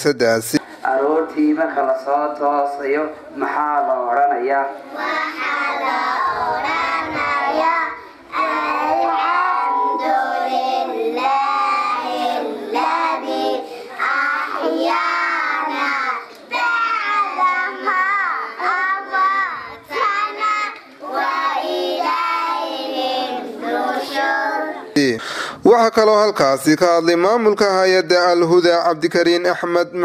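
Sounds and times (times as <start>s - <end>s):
girls singing into a microphone: 4.9s - 24.9s.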